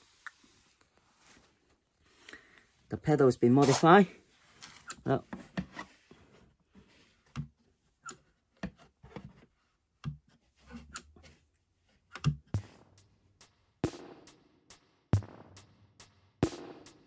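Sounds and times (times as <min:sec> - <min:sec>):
metal pedal clicks and knocks: 0:12.1 - 0:12.6.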